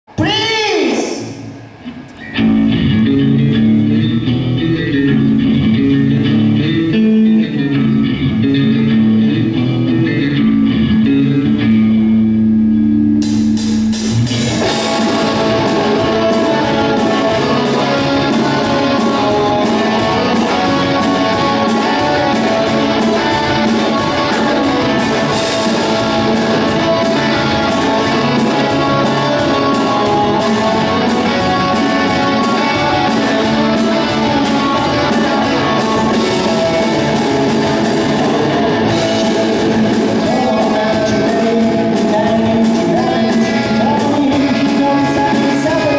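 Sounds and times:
electric guitars and bass: 0:01.2 - 0:45.9
drums and cymbals: 0:13.2 - 0:45.9.

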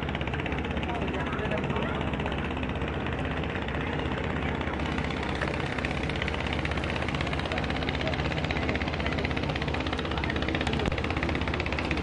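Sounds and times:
ship engine droning: 0:00.0 - 0:12.0.

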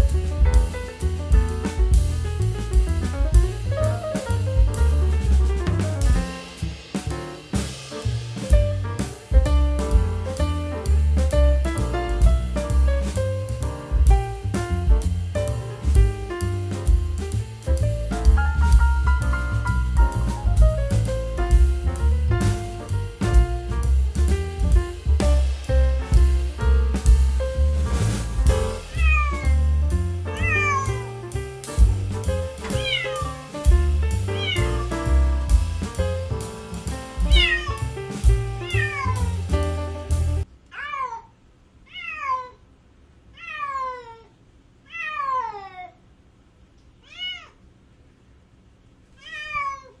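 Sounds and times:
background music with steady beat: 0:00.0 - 0:40.5
kittens mewing: 0:30.4 - 0:31.0, 0:32.8 - 0:33.2.

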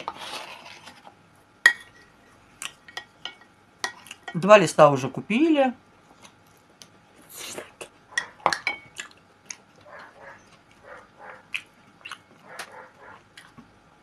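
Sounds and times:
close chewing with lip smacks: 0:08.9 - 0:13.6.

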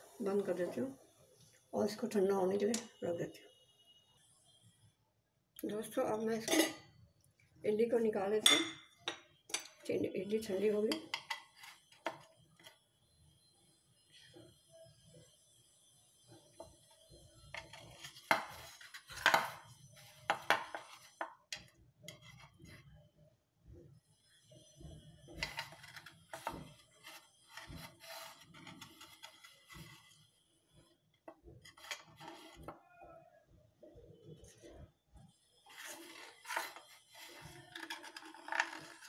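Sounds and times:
knife scraping a metal plate: 0:22.1 - 0:22.8, 0:25.3 - 0:30.2, 0:31.6 - 0:32.7, 0:35.7 - 0:39.0.

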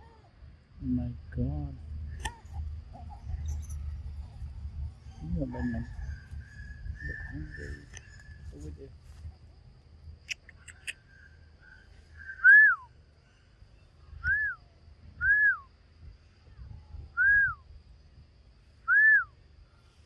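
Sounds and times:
person whistling short notes: 0:12.4 - 0:12.8, 0:14.2 - 0:14.6, 0:15.2 - 0:15.6, 0:17.2 - 0:17.6, 0:18.9 - 0:19.3.

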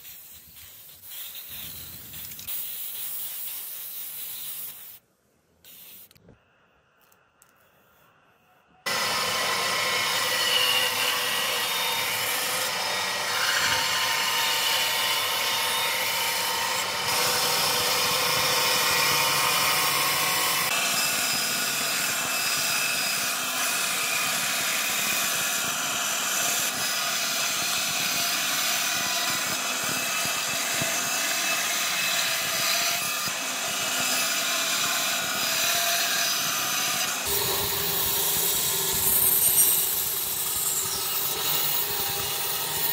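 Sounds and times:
band saw cutting wood: 0:08.9 - 0:42.9.

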